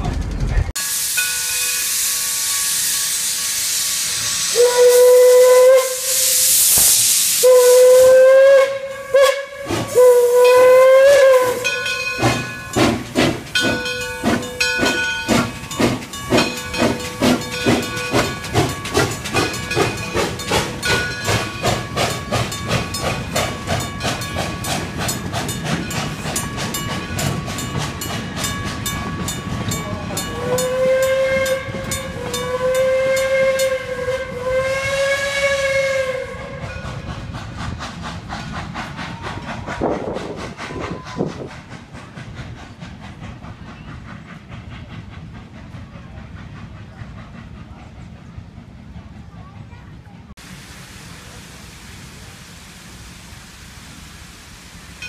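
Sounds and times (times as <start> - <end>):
steam whistle blasts: 0.8 - 12.2, 30.3 - 36.8
steam hissing: 0.8 - 49.3, 50.4 - 55.0
locomotive bell ringing: 1.1 - 3.3, 9.9 - 33.9.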